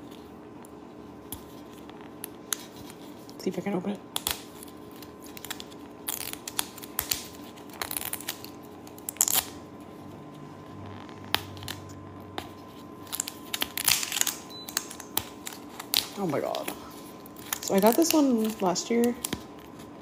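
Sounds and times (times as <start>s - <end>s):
plastic wrapper crinkling and tearing: 4.1s - 9.6s, 12.6s - 20.0s.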